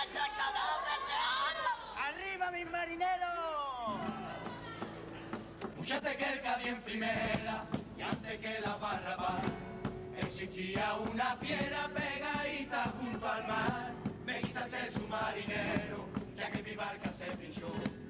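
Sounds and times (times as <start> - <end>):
choir singing in unison: 5.8 - 18.0
percussive beat: 6.9 - 18.0.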